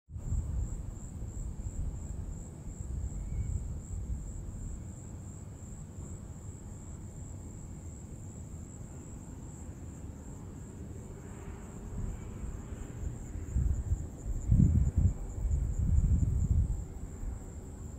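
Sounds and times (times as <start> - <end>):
wind buffeting microphone: 0.1 - 5.4, 11.1 - 17.9
high-pitched insect chorus: 0.2 - 17.9.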